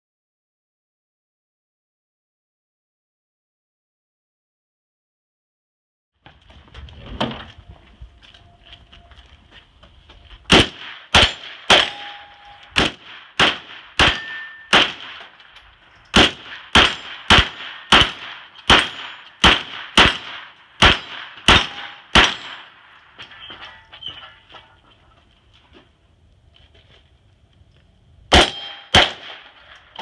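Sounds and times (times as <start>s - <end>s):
gunshots: 10.5s - 15.4s, 16.1s - 22.9s, 28.3s - 30.0s
bullets hitting steel targets: 10.5s - 24.4s, 28.3s - 30.0s.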